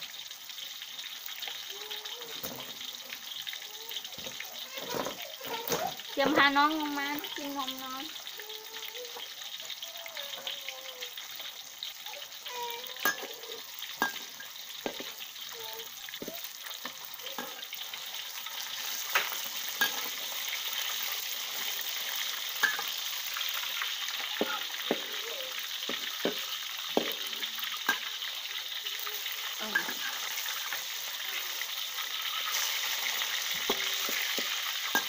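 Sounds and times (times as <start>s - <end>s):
fish sizzling in hot oil: 0.0s - 35.0s
metal spatula scraping wok: 16.2s - 23.1s, 29.5s - 35.0s.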